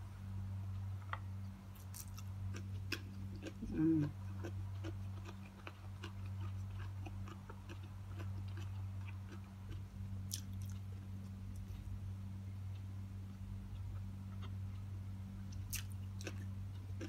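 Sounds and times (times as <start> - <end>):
steady low hum: 0.0 - 17.0
person chewing: 1.7 - 12.0, 15.5 - 17.0.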